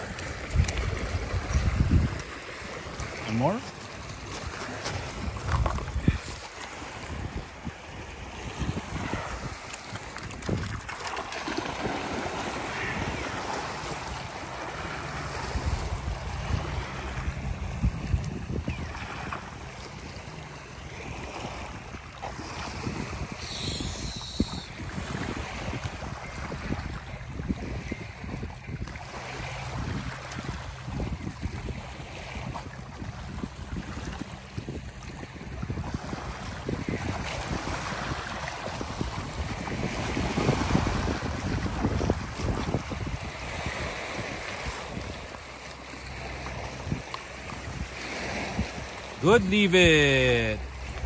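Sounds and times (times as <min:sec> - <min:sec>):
wind buffeting microphone: 0:00.0 - 0:49.9
waves lapping on pebble shore: 0:00.0 - 0:51.0
dog splashing and swimming: 0:09.9 - 0:17.8.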